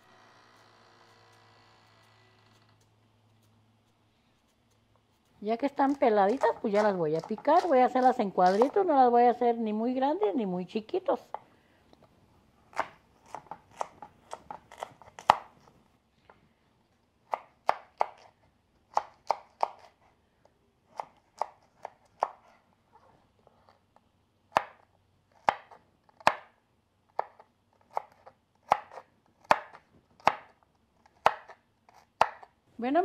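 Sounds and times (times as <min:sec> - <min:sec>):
knife chopping on wooden board: 0:05.9 - 0:08.9, 0:12.7 - 0:15.5.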